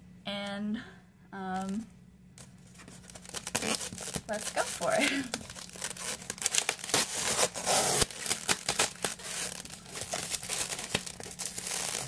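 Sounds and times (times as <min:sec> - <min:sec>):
packaging crinkling and tearing: 0:02.7 - 0:12.0.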